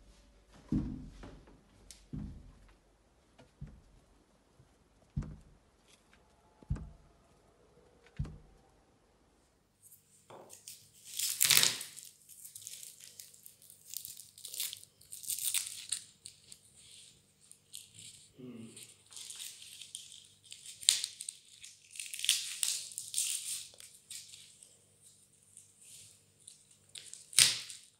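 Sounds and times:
dull knocks: 2.1 - 2.7, 3.4 - 4.0, 5.1 - 5.6, 6.7 - 7.0, 8.2 - 8.5
garlic skins crackling and tearing: 9.8 - 16.7, 18.9 - 24.8, 25.5 - 27.9.

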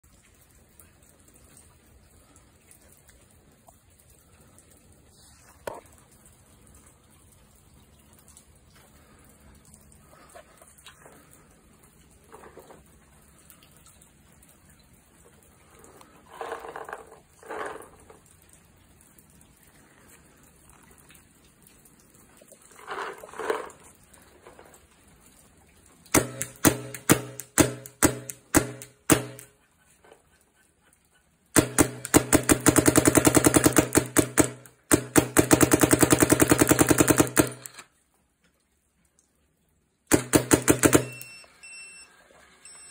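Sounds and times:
paintball marker firing: 26.2 - 29.5, 31.6 - 37.8, 40.1 - 41.2.

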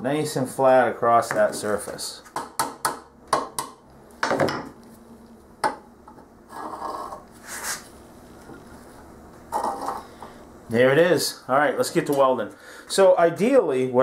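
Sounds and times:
steel straightedge scraping: 6.5 - 7.8.

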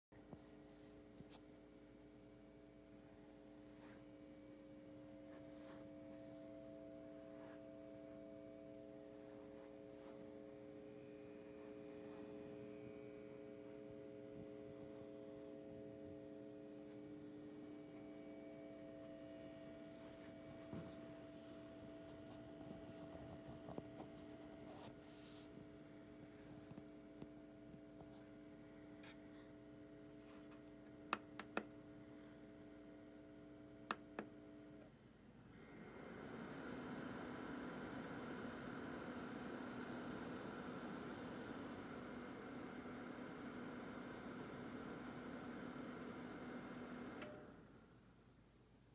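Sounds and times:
projector colour wheel hum: 0.2 - 48.9.

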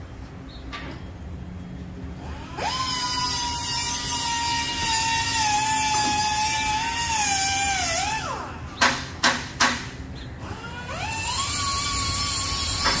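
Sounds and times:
power tool whining: 2.2 - 8.8, 10.4 - 13.0
sharp knocks: 8.8 - 10.0.

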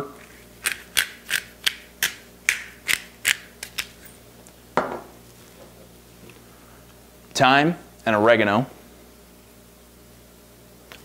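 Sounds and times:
pepper grinder clicking: 0.6 - 3.9.

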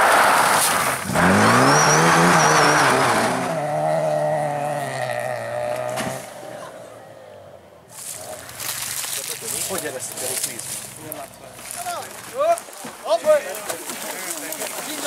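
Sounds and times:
rally car engine at full throttle: 0.0 - 7.8.

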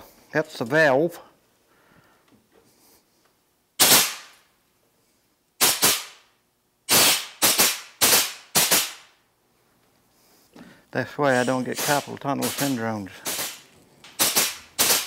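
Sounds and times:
pneumatic rivet gun rattling: 3.8 - 4.3, 6.9 - 9.0, 11.6 - 15.0.

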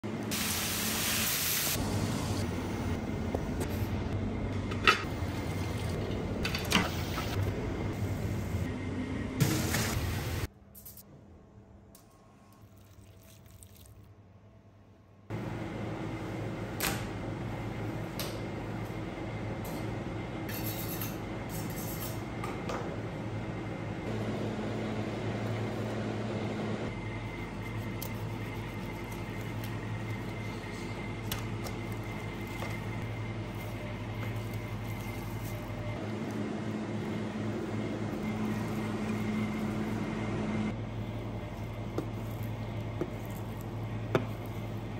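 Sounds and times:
kitchen machinery hum: 0.0 - 44.9
soft wet sounds of raw fat: 12.4 - 14.1.

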